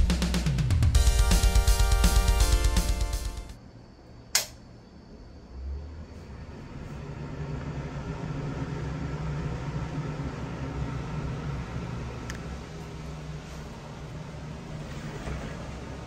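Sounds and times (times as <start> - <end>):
exhaust fan motor whirring: 3.8 - 16.0
fan switch click: 4.3 - 4.6.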